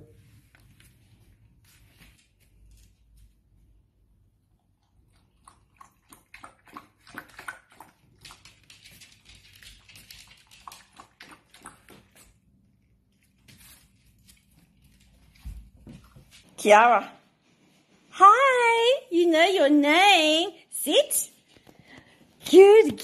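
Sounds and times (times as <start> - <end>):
puppy lapping water from bowl: 4.7 - 12.5.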